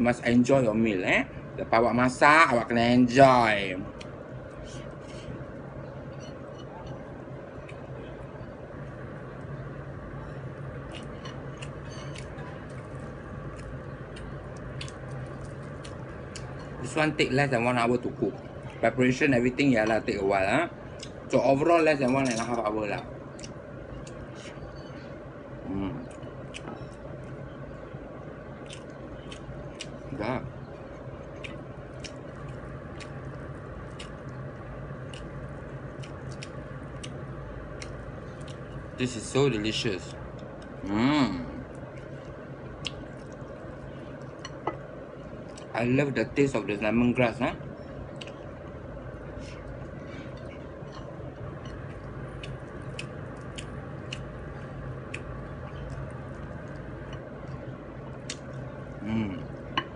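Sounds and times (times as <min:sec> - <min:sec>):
steady low hum: 0:00.0 - 0:59.9
chewing and finger clicks: 0:13.5 - 0:16.5, 0:28.6 - 0:30.0, 0:31.3 - 0:34.4, 0:35.0 - 0:35.3, 0:35.9 - 0:38.7, 0:48.1 - 0:48.4, 0:50.4 - 0:54.4, 0:55.0 - 0:57.6, 0:58.2 - 0:58.6.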